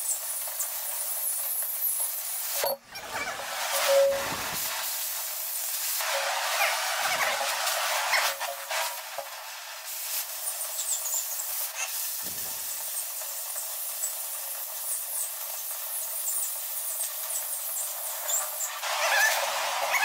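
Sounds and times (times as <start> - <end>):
cutting torch gas hiss: 0.0 - 20.0
sparks and slag crackling: 0.0 - 20.0.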